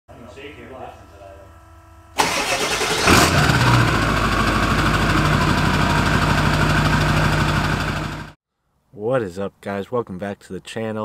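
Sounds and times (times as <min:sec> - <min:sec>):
diesel engine starting and idling: 0:02.2 - 0:08.4.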